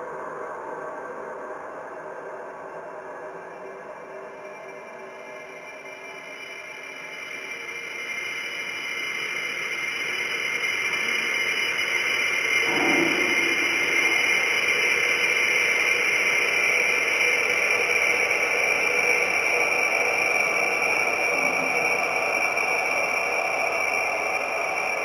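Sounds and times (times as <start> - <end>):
dense hissing drone: 11.7 - 16.6, 20.2 - 23.0
steady high tones: 12.2 - 15.5
short lower-pitched sound: 12.6 - 14.8.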